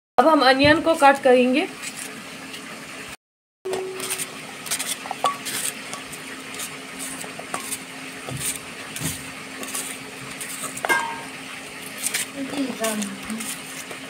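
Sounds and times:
knife slicing onion: 0:03.8 - 0:14.0
metallic rings on steel bowl: 0:10.9 - 0:11.3.

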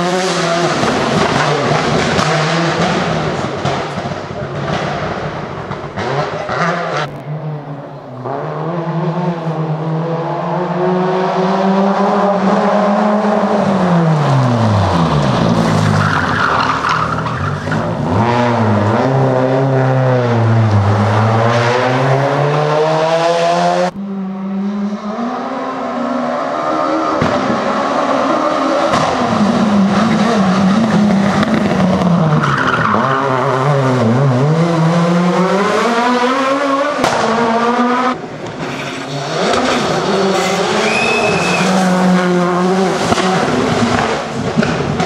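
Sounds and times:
rally car engine revving: 0:00.0 - 0:45.0
rally cars passing: 0:00.0 - 0:45.0
tyre squeal: 0:40.2 - 0:42.0.

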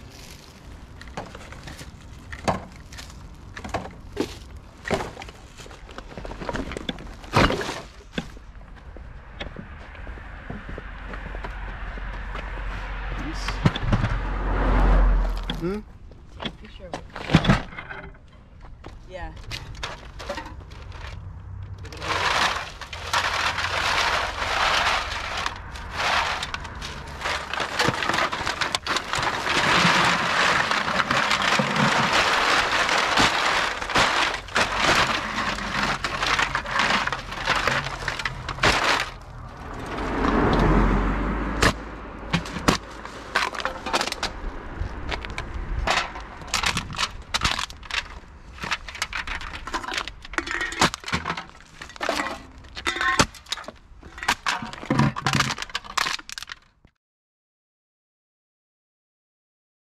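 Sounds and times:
low rumble: 0:08.4 - 0:16.1
aluminum cans clattering: 0:19.5 - 0:40.6, 0:41.6 - 0:44.4, 0:45.2 - 0:56.6.

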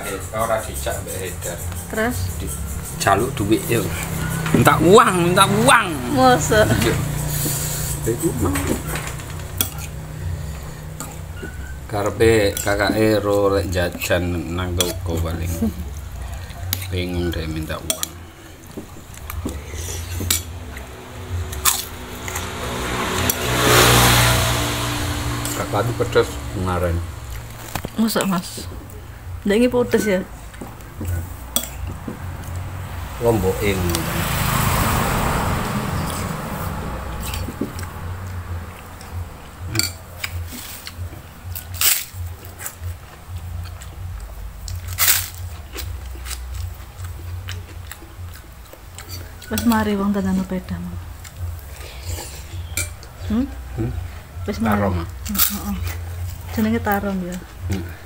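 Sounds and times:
passing vehicle engine: 0:00.0 - 0:58.0
soft chewing: 0:06.7 - 0:25.5, 0:36.0 - 0:50.0
cracker crunching: 0:27.2 - 0:28.9, 0:37.2 - 0:49.6.

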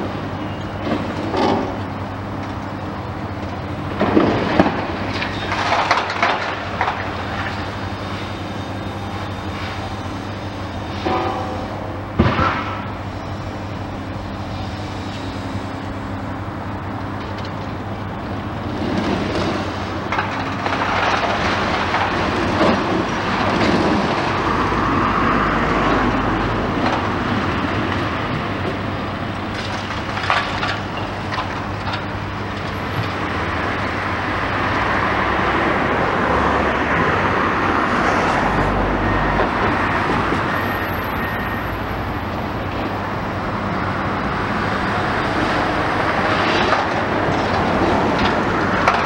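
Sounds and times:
excavator running: 0:00.0 - 0:49.0
brick cracking and rubble falling: 0:04.0 - 0:07.7, 0:20.1 - 0:24.3, 0:46.6 - 0:49.0.

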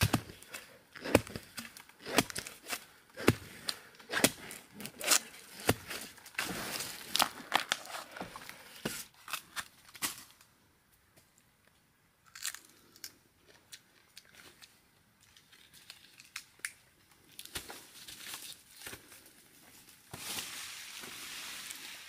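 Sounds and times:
sharp knocks of digging: 0:00.0 - 0:07.3
husk tearing and rustling: 0:00.0 - 0:10.2.

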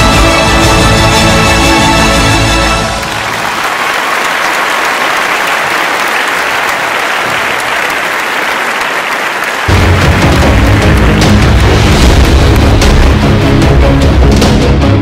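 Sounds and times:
theme music: 0:00.0 - 0:04.0, 0:09.7 - 0:15.0
large audience applauding: 0:02.0 - 0:13.3.

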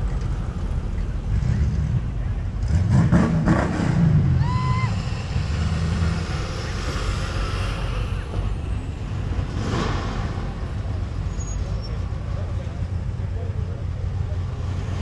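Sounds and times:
car engines rumbling past: 0:00.0 - 0:15.0
short squeal: 0:11.3 - 0:12.0.

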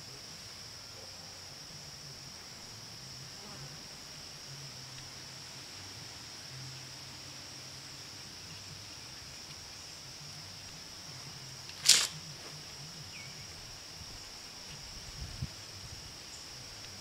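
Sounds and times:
sharp scraping rustle: 0:11.7 - 0:12.6.

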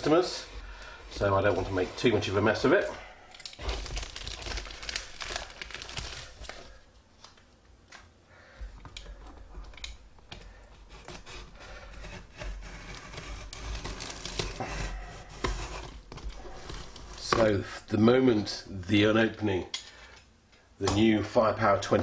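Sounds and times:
box and pouch rustling: 0:03.6 - 0:06.8.

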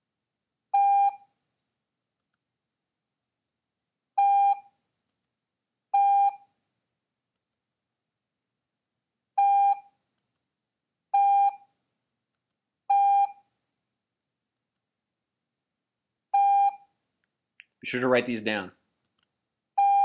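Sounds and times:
morse code beeps: 0:00.8 - 0:01.2, 0:04.2 - 0:04.6, 0:06.0 - 0:06.4, 0:09.4 - 0:09.9, 0:11.2 - 0:11.6, 0:12.9 - 0:13.4, 0:16.4 - 0:16.8, 0:19.8 - 0:20.0.

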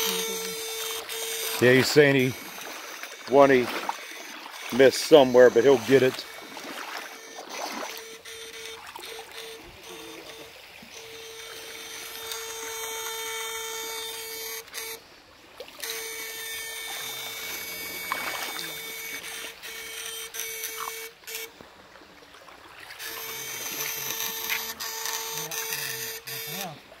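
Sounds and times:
electric hum of shocker: 0:00.0 - 0:15.0
water trickling: 0:00.0 - 0:27.0.

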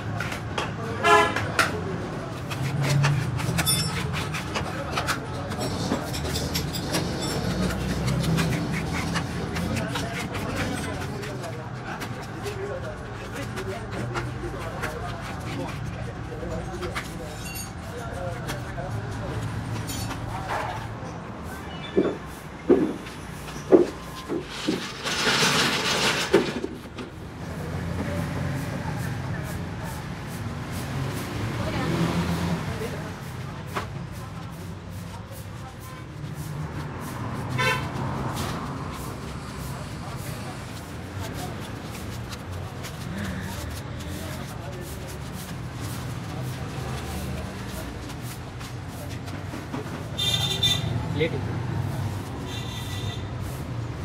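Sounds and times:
metal plates scraping and clattering: 0:02.4 - 0:11.1, 0:24.2 - 0:27.0.

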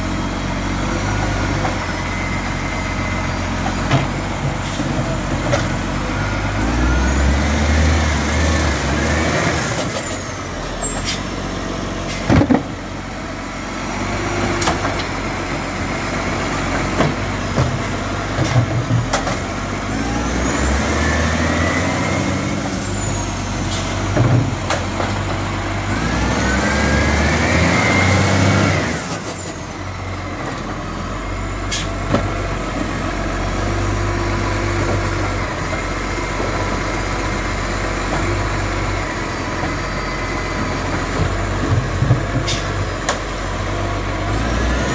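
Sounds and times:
diesel engine revving: 0:00.0 - 0:44.9.

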